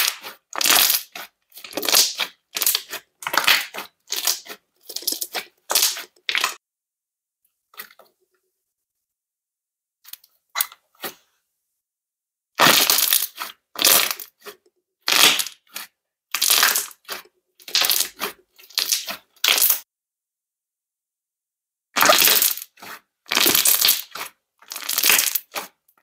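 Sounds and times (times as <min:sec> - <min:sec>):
slime popping and crackling: 0:00.0 - 0:06.6, 0:12.6 - 0:19.8, 0:22.0 - 0:25.8.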